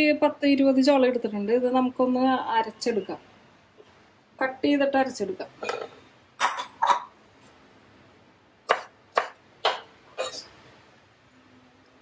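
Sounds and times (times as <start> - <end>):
knife chopping on wooden board: 8.7 - 9.9.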